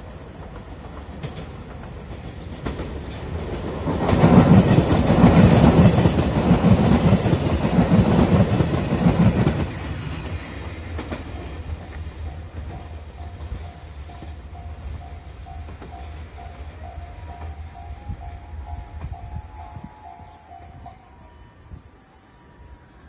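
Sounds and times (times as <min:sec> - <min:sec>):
wheels clacking over rail joints: 0:00.0 - 0:17.6
diesel train passing: 0:00.0 - 0:23.0.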